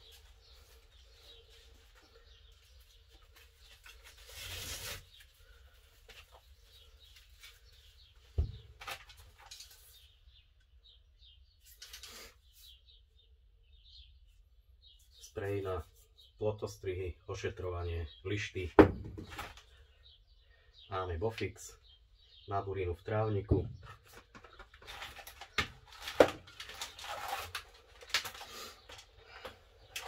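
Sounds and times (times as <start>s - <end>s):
items rustling in a crate: 23.9s - 30.0s.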